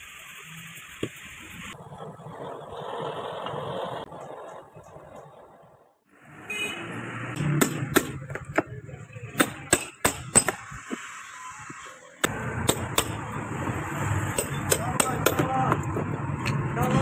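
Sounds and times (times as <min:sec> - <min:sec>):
hammer striking chisel on plastic: 0:14.4 - 0:15.9.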